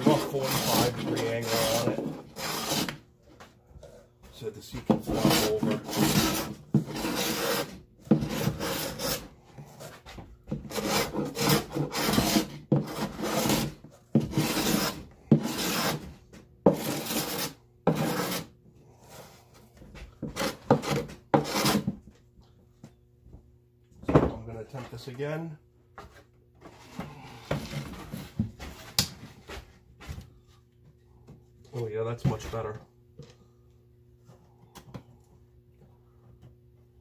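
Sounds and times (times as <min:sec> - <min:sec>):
block plane shaving wood: 0:00.0 - 0:03.0, 0:04.8 - 0:19.3, 0:20.2 - 0:21.9.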